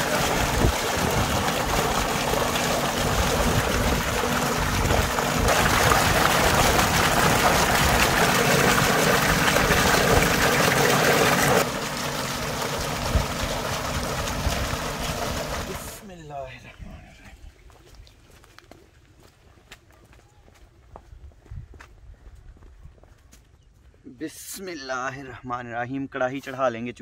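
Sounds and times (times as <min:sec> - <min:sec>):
water gushing into a tank: 0:00.0 - 0:16.4.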